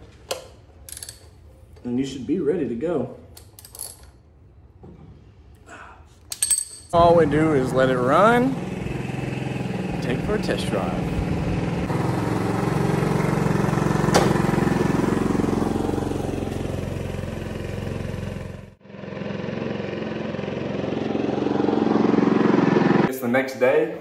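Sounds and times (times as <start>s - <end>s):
motorcycle engine running: 7.0s - 23.1s
motorcycle riding past: 7.0s - 23.1s.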